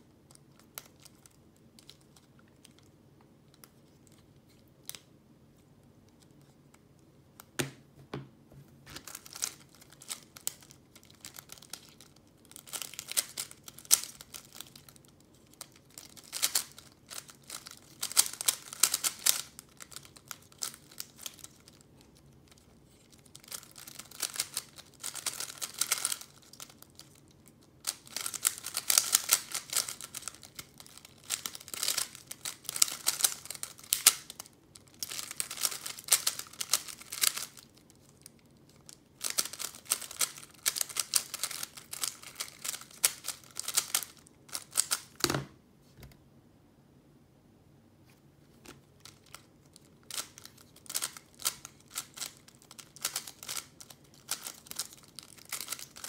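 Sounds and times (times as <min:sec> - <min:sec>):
speed cube layers clicking: 0:23.5 - 0:26.7, 0:27.8 - 0:34.3, 0:50.9 - 0:53.7.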